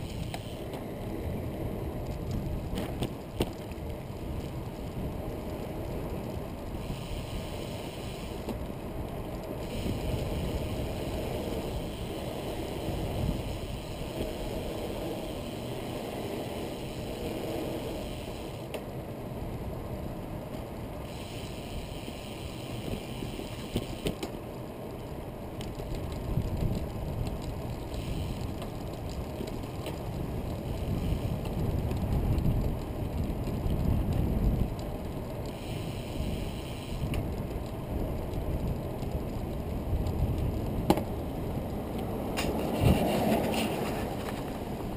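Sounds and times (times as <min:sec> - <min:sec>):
wind buffeting microphone: 0:08.3 - 0:18.6, 0:25.7 - 0:44.9
tyre rumble on asphalt: 0:36.3 - 0:44.9.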